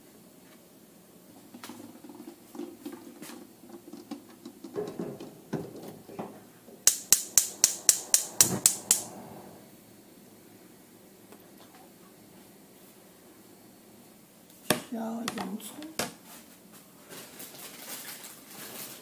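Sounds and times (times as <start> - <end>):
pot lid and saucepan clattering: 3.9 - 6.4
burner spark igniter clicking: 6.8 - 9.6.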